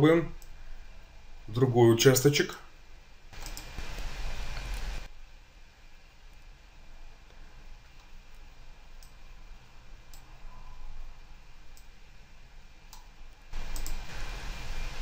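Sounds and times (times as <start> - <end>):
recording hiss with low hum: 0.0 - 15.0
computer mouse clicks: 3.4 - 3.7, 10.1 - 10.3, 13.7 - 14.0.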